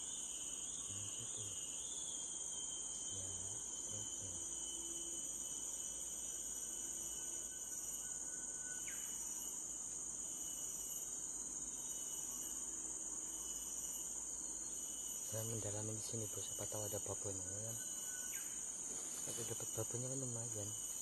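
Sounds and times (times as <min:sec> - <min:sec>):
insects droning: 0:00.0 - 0:21.0
faint thin rising whistle: 0:06.9 - 0:09.6.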